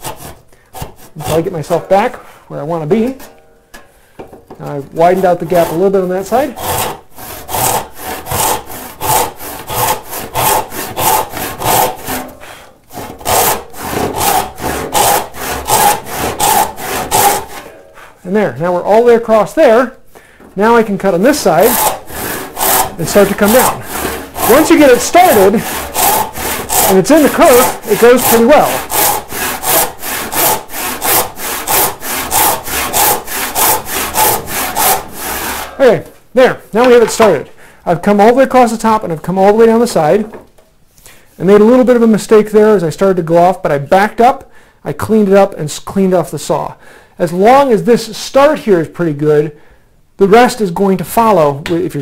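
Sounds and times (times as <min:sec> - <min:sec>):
hand saw cutting wood: 0:00.0 - 0:01.9, 0:05.0 - 0:17.8, 0:20.7 - 0:35.8.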